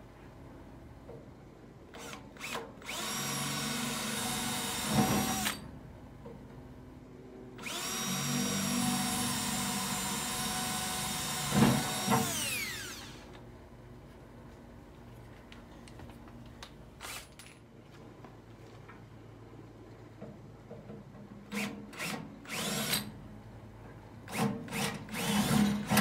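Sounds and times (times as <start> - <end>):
power drill whining: 2.0 - 5.6, 7.6 - 13.4, 21.5 - 23.1, 24.3 - 26.0.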